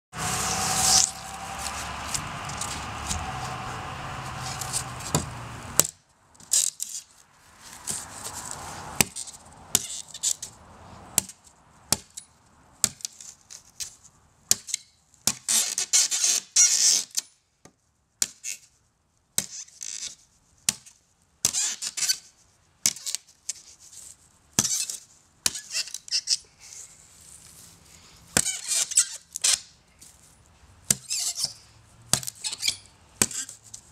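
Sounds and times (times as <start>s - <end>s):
blade scraping and squeaking in wood: 0.2s - 5.6s, 6.4s - 10.6s, 14.7s - 17.3s, 19.4s - 20.3s, 21.4s - 27.5s, 28.3s - 29.8s, 30.9s - 33.9s
knife blade chopping into plywood: 5.0s - 5.9s, 30.9s - 33.6s.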